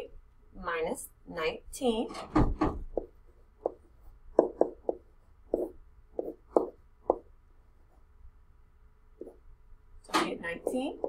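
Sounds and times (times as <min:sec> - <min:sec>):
pen tapping on tablet: 0:02.8 - 0:07.3.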